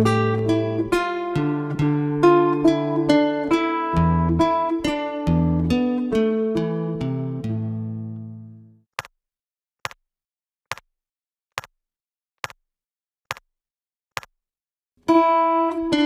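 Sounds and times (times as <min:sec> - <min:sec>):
nylon-string guitar: 0:00.0 - 0:08.8, 0:15.0 - 0:16.0.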